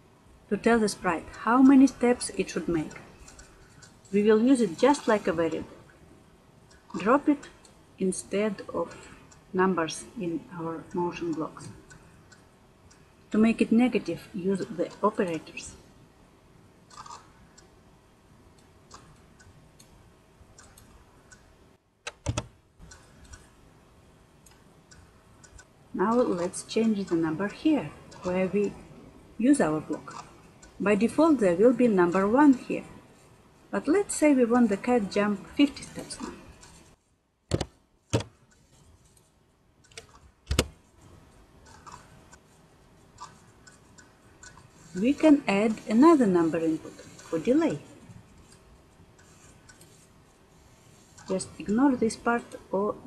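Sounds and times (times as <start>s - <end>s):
computer keyboard keystrokes: 22.1s - 23.5s.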